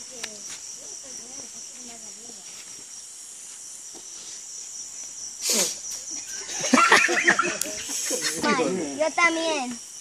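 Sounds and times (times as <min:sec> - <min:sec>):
voices: 0:00.0 - 0:02.6, 0:05.5 - 0:09.9
insects chirring: 0:00.0 - 0:10.0.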